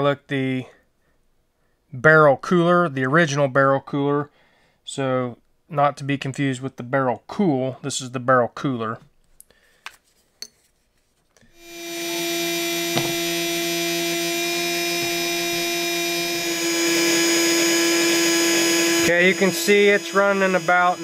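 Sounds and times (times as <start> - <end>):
fan whining: 11.6 - 21.0.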